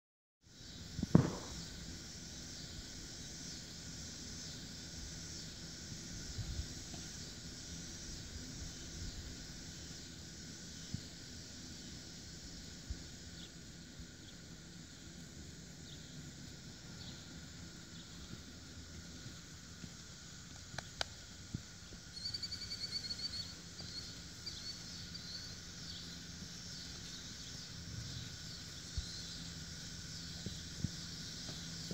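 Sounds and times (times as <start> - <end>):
insects hissing: 0.4 - 31.9
loud thump: 1.1 - 1.7.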